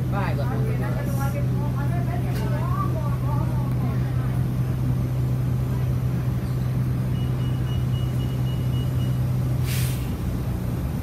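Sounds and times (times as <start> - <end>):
bus engine droning: 0.0 - 11.0
air brakes hissing: 8.9 - 10.2.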